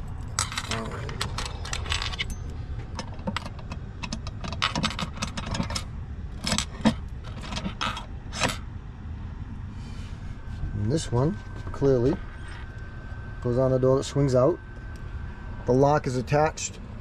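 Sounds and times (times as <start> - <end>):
key clinking in a lock: 0.3 - 8.6
keys jangling: 0.3 - 8.6.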